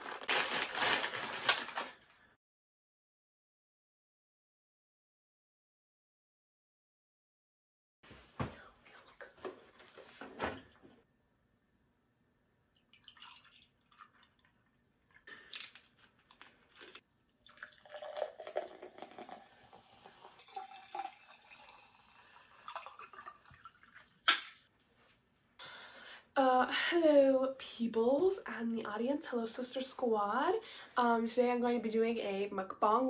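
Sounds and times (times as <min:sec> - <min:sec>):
liquid pouring into glass: 0:12.8 - 0:14.3, 0:17.4 - 0:24.2.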